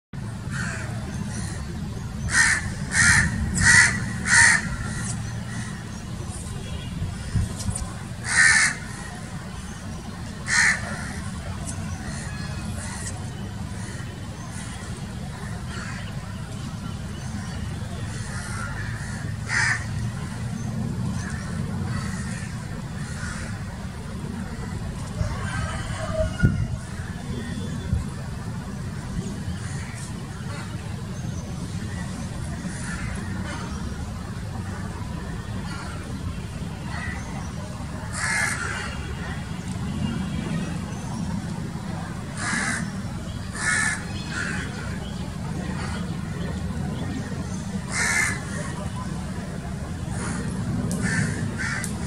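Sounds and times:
steady low rumble: 0.2s - 25.6s, 26.4s - 52.0s
crow cawing: 2.3s - 5.7s, 8.2s - 9.0s, 10.5s - 11.2s, 18.2s - 19.9s, 38.1s - 38.9s, 42.4s - 42.9s, 43.6s - 44.7s, 47.9s - 48.5s, 51.0s - 51.9s.

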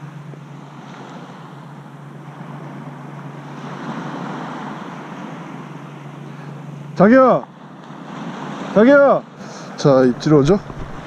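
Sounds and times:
steady low hum: 0.0s - 11.0s
surf breaking on beach: 2.4s - 11.0s.

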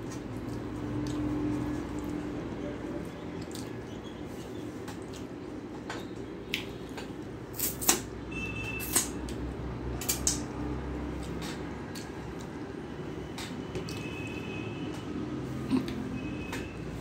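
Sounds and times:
mouth sounds eating: 15.6s - 16.1s.

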